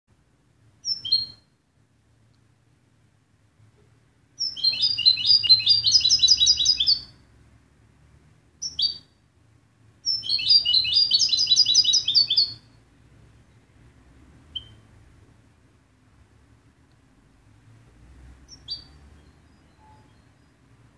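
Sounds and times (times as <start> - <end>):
goldfinch singing: 0.8 - 1.4, 4.4 - 7.1, 8.6 - 9.1, 10.0 - 12.7, 18.5 - 20.5
bird call: 4.4 - 7.1, 10.1 - 12.6.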